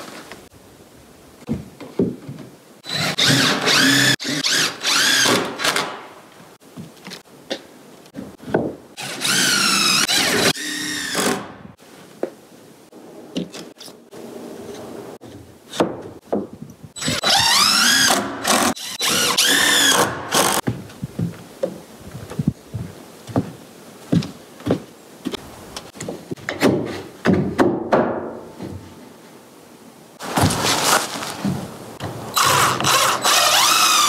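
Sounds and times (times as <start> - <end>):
power drill driving screws: 2.8 - 5.9, 9.0 - 11.5, 17.0 - 20.6, 32.3 - 34.0.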